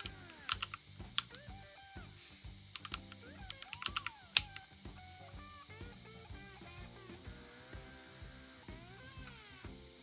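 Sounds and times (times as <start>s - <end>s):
keyboard keystrokes: 0.0s - 1.4s, 2.8s - 4.6s
boogie-woogie music: 0.0s - 10.0s.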